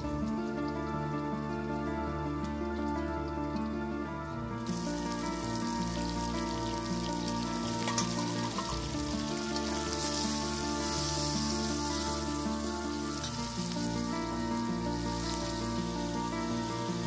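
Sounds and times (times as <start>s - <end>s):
slow background music: 0.0s - 17.0s
food sizzling in oil: 4.6s - 17.0s.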